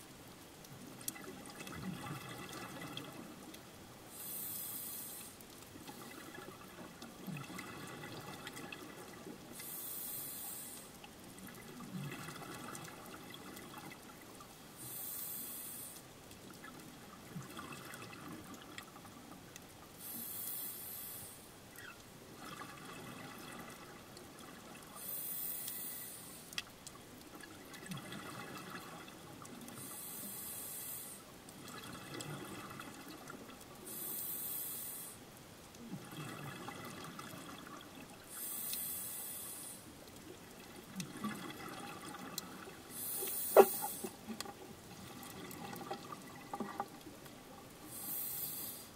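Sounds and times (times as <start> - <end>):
regulator hiss: 4.1 - 5.4, 9.6 - 10.9, 14.8 - 16.1, 20.0 - 21.5, 25.0 - 26.5, 29.8 - 31.3, 33.9 - 35.2, 38.3 - 39.9, 42.9 - 44.2, 47.9 - 48.9
exhaled bubbles rushing: 43.6 - 47.8.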